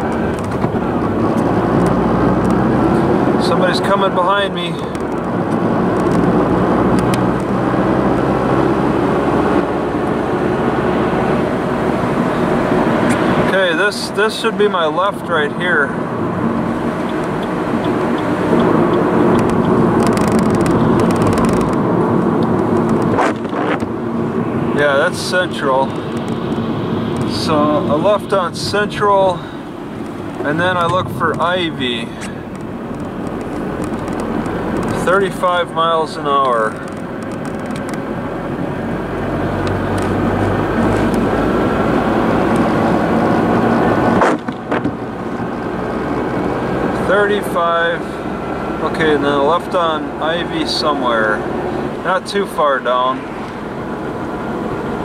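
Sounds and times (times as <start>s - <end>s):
car engine and tyres on wet road: 0.0s - 55.0s
turn signal ticking: 4.9s - 7.5s, 16.3s - 23.1s, 32.2s - 35.0s, 36.8s - 38.7s
sharp clicks: 17.0s - 23.9s, 32.2s - 35.0s, 36.4s - 38.1s.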